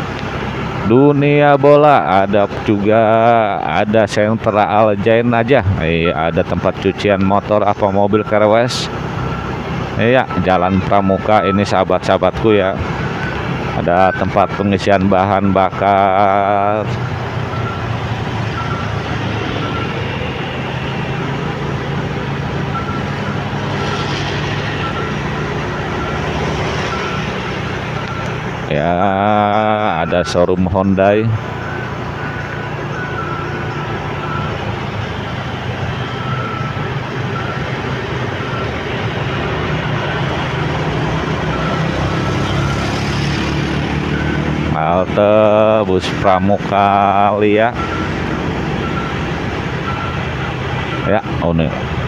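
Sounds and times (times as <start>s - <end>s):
motorcycle engine hum: 0.0s - 52.0s
passing vehicles: 0.0s - 52.0s
wind and road noise: 0.0s - 52.0s
short high beeps: 18.5s - 21.4s, 22.6s - 28.5s, 35.9s - 37.8s, 47.7s - 48.2s.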